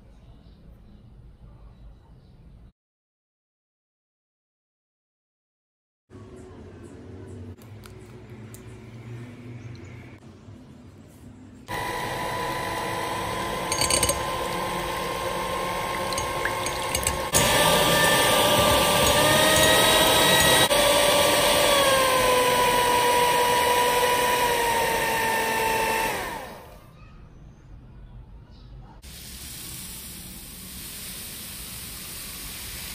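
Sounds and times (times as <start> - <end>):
electric hand mixer whining: 11.7 - 26.8.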